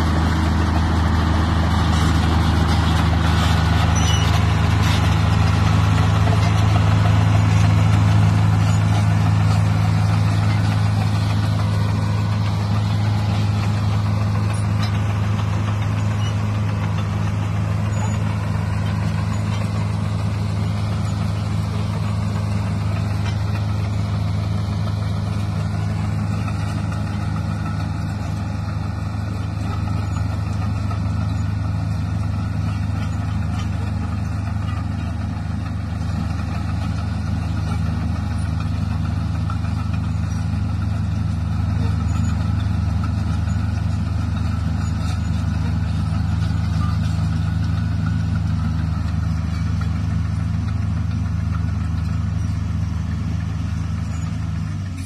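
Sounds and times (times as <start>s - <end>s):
bulldozer diesel engine running: 0.0s - 55.0s.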